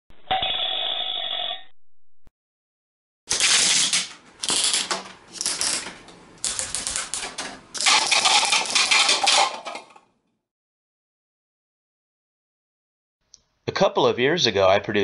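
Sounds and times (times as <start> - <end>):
rubber band gun rattling: 3.3 - 9.9.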